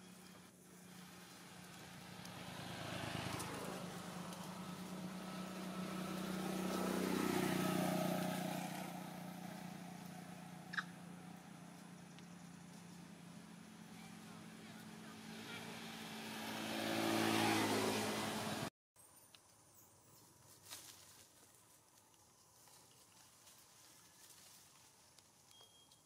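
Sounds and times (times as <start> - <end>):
motor vehicles passing: 0.0 - 18.7.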